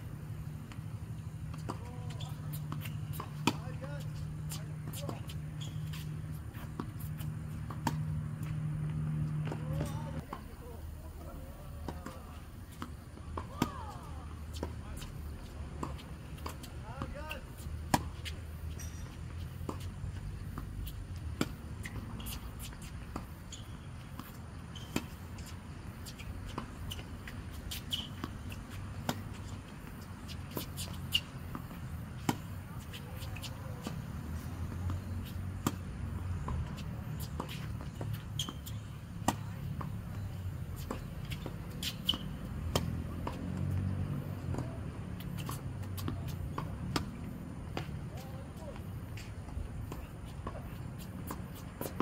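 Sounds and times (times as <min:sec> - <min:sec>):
ball bouncing: 0:01.5 - 0:03.7, 0:06.7 - 0:10.3
racket striking tennis ball: 0:01.5 - 0:10.4, 0:15.6 - 0:23.4, 0:36.4 - 0:48.4.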